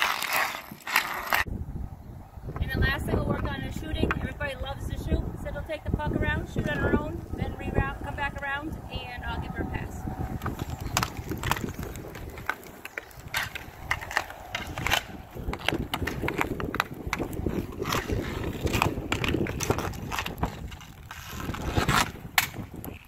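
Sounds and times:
hockey sticks striking puck: 0:00.0 - 0:01.5, 0:10.4 - 0:23.0
inline skate wheels rolling on asphalt: 0:00.0 - 0:01.6, 0:02.4 - 0:23.0.

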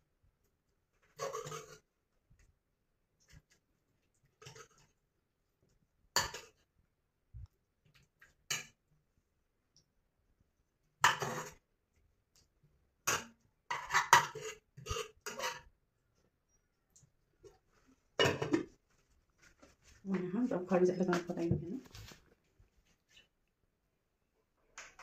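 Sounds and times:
metal spoon scraping metal bowl: 0:01.2 - 0:01.8, 0:13.7 - 0:15.7.

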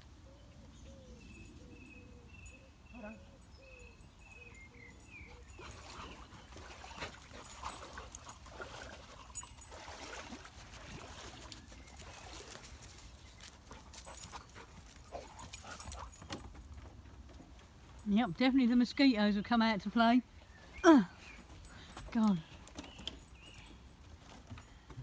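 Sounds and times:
dog rustling through undergrowth: 0:10.7 - 0:16.1.

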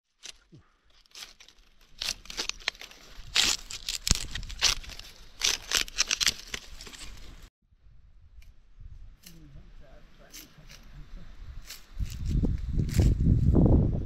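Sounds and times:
rustling and tearing of vegetation: 0:00.0 - 0:07.5, 0:10.2 - 0:13.6.

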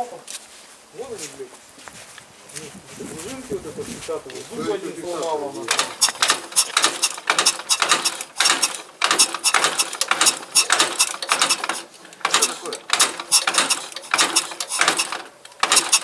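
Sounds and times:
metal clicking: 0:05.7 - 0:16.0.

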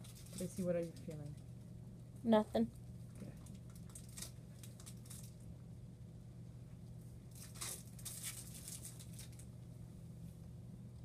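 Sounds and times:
crinkling and rustling: 0:00.0 - 0:01.7, 0:02.8 - 0:05.5, 0:07.3 - 0:09.6
steady low hum: 0:00.0 - 0:11.0.

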